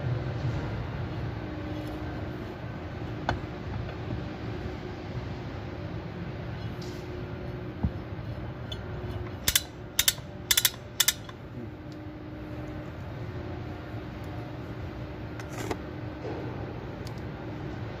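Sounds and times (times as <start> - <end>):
steady low hum: 0.0 - 18.0
chain block ratchet clicking: 9.4 - 11.4.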